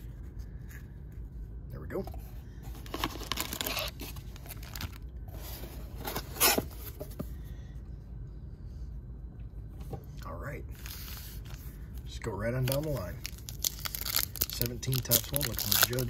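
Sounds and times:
rustling and crinkling wrappers: 2.7 - 6.4, 10.7 - 16.0.

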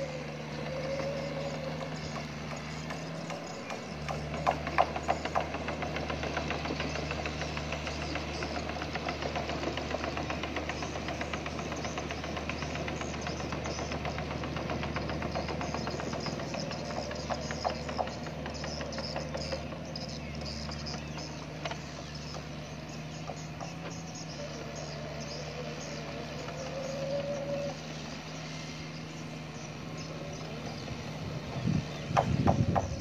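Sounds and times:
rattling clicks and clanks: 0.0 - 24.3
excavator diesel engine running: 0.0 - 33.0.

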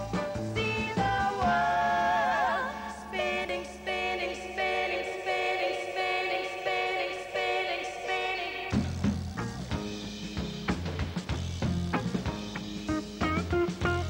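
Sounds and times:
live backing band: 0.0 - 3.4, 8.7 - 14.0
women singing in harmony: 0.0 - 8.8.

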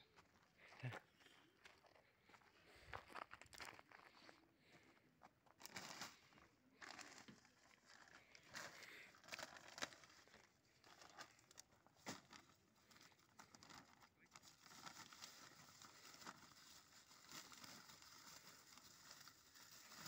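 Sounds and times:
plastic bag crinkling: 5.6 - 20.0.

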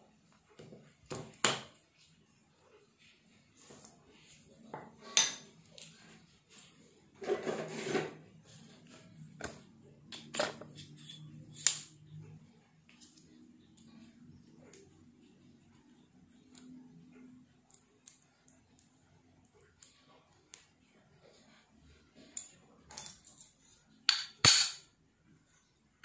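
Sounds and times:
metal rubbing handling sound: 10.1 - 12.0.

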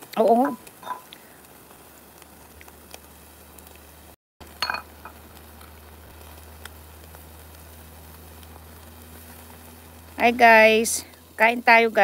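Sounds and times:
faint sizzle: 0.0 - 12.0
steady low hum: 4.4 - 11.7.

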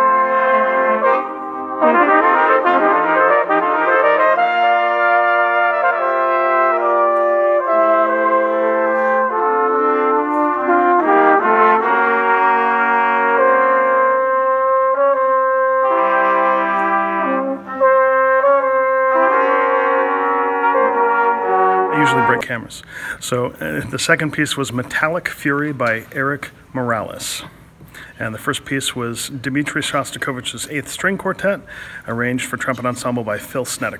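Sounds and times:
trumpet ensemble playing chords: 0.0 - 22.7.

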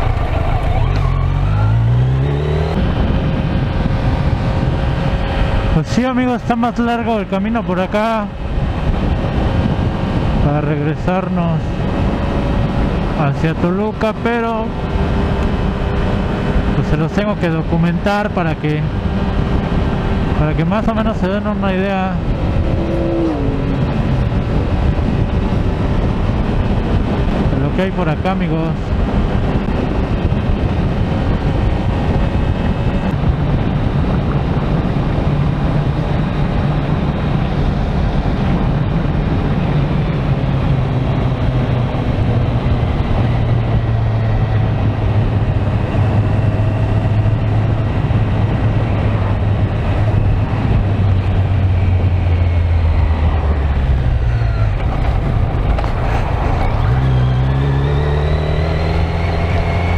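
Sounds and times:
motorcycle engine cruising: 0.0 - 59.9
wind and road rush: 0.0 - 59.9.

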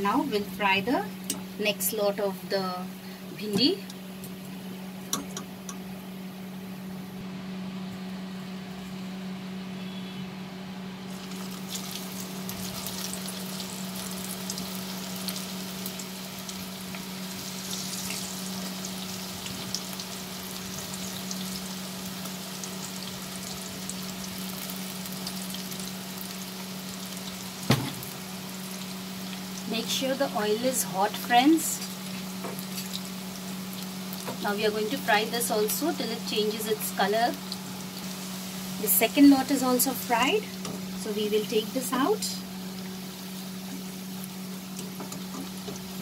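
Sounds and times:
low steady hum: 0.0 - 46.0
food deep-frying in oil: 11.0 - 46.0.

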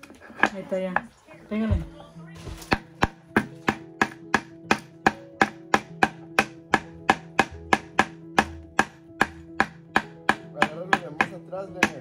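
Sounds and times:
hammer driving nail into wood: 2.7 - 12.0.

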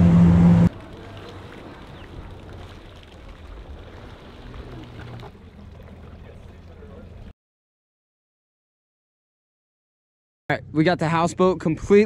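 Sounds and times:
faint distant engine hum: 0.0 - 7.3
jet ski engine running: 0.0 - 7.3
wind: 0.0 - 7.3, 10.5 - 12.0
water washing: 0.7 - 7.3.

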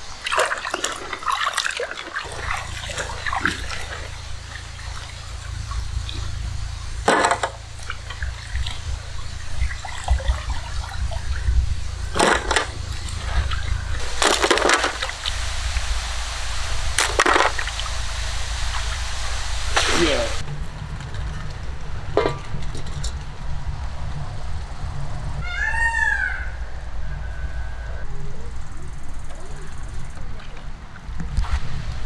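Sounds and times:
water sloshing in steel pot: 0.2 - 6.4
steady low rumble: 2.2 - 32.0.

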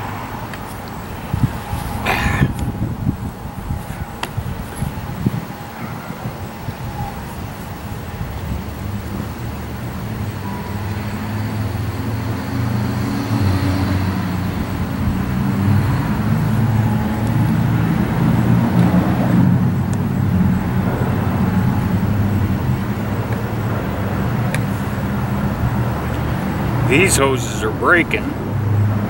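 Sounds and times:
low engine rumble: 14.1 - 29.0.

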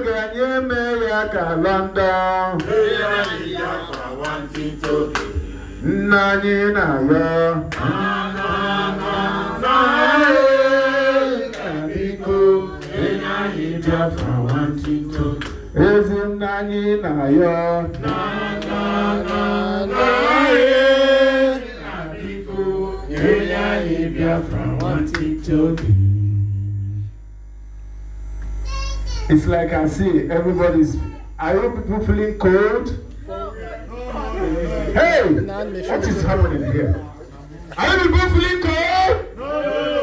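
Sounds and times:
man singing through a pa: 0.0 - 27.2.

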